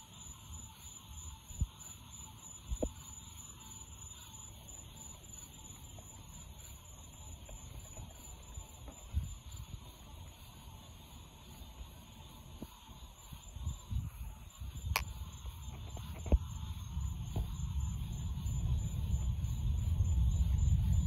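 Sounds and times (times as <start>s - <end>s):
distant rocket engine rumble: 14.0s - 21.0s.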